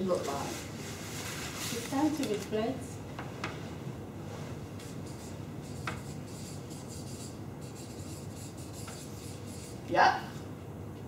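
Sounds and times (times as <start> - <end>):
marker pen scratching on paper: 4.8 - 9.9.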